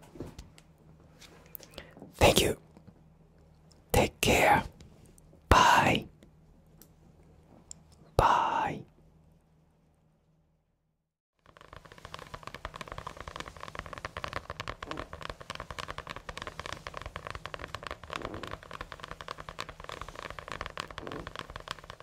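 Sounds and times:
satin cloth crackling rustle: 11.4 - 22.0.

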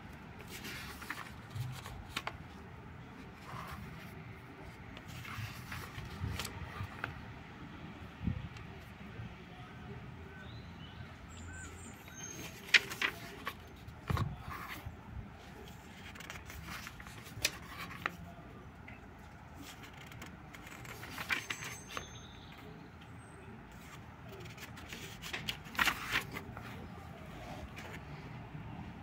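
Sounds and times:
paper pages rustling: 0.4 - 2.6, 3.2 - 7.2, 12.0 - 18.3, 19.6 - 22.7, 23.7 - 28.2.

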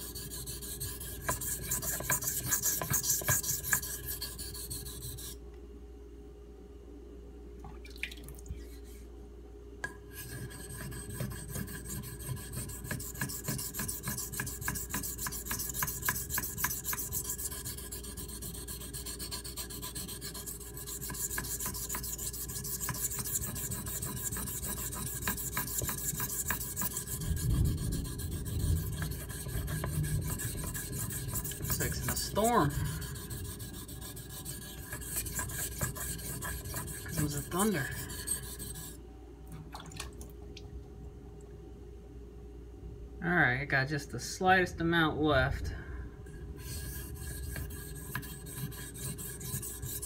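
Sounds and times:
knife scraping on sharpening stone: 0.0 - 5.4, 10.1 - 27.4, 28.9 - 39.0, 46.6 - 50.0.

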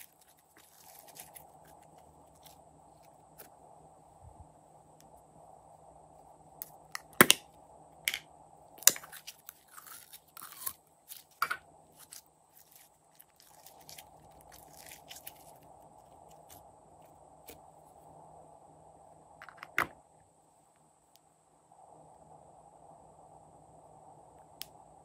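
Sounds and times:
slime squishing and crackling: 0.0 - 2.6, 8.8 - 11.4, 12.0 - 15.6.

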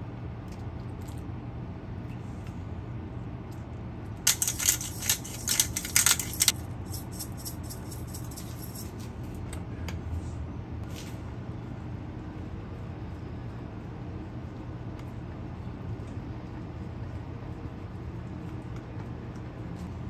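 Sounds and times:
steady low hum: 0.0 - 9.1
small metallic jingles and clicks: 4.3 - 9.0.

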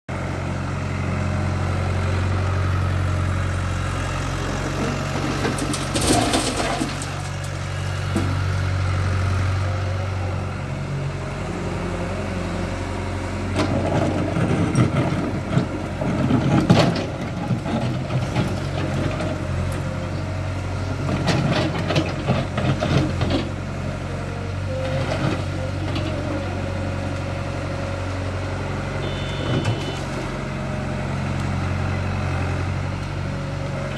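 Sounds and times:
excavator diesel engine running: 0.1 - 33.9
bucket scraping asphalt and stones: 4.5 - 8.4, 29.1 - 30.4.

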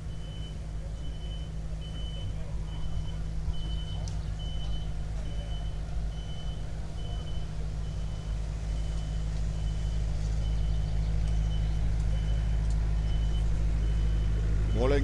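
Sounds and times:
low rumble: 0.0 - 15.0
reversing alarm beeping: 0.0 - 15.0.

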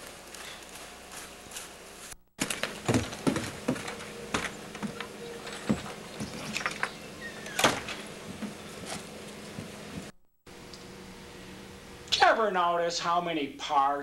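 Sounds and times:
knocks and clatters: 2.4 - 7.0
door banging shut: 2.4 - 8.1.

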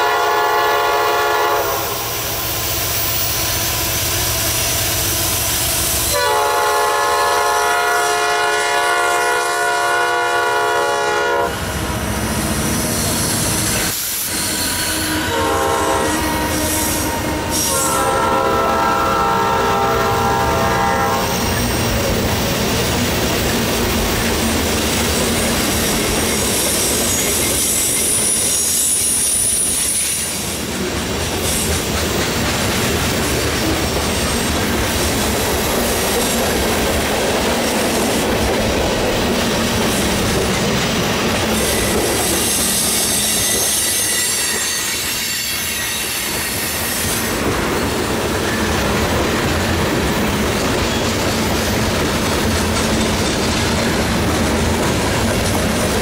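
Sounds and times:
steel wheels on rail: 0.0 - 56.0
high-pitched wheel squeal: 12.8 - 15.3, 41.5 - 47.4.

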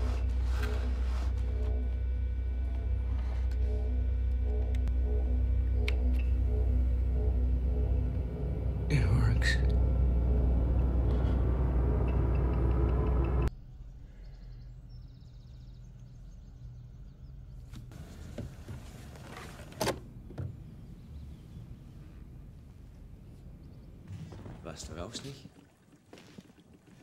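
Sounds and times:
loud low rumbling drone: 0.0 - 17.6.

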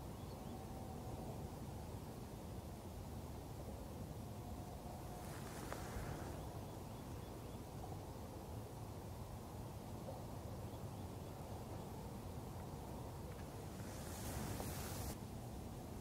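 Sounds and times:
brief rustle: 5.2 - 6.4, 13.3 - 15.2.

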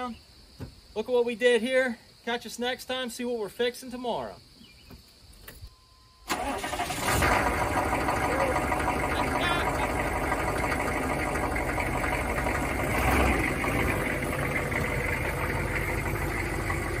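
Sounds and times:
diesel engine idling: 6.3 - 17.0.

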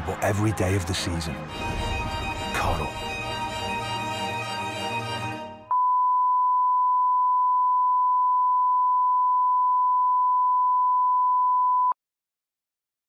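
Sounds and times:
advert music: 0.0 - 5.7
steady test tone beep: 5.7 - 12.0.

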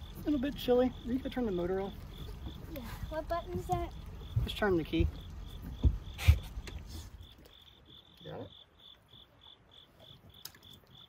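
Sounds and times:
boat motor rumbling: 0.0 - 9.3
crickets chirping: 0.0 - 11.0
knocks: 3.6 - 6.4.

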